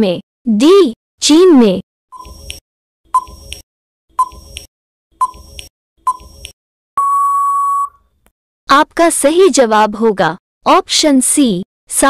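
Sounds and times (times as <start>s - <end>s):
short ticking blips: 2.2s - 3.6s, 4.2s - 8.0s
long steady beep: 7.0s - 8.0s.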